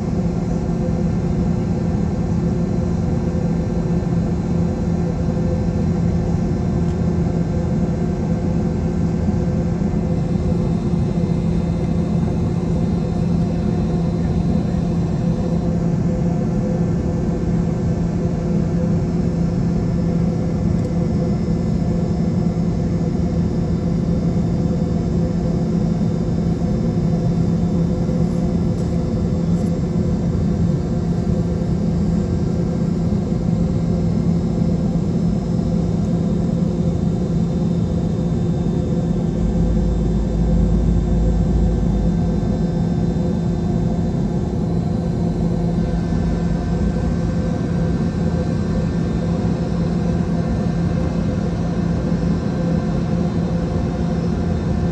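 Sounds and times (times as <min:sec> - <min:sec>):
airplane cabin engine hum: 0:00.0 - 0:54.9
deep rumble: 0:39.1 - 0:43.3.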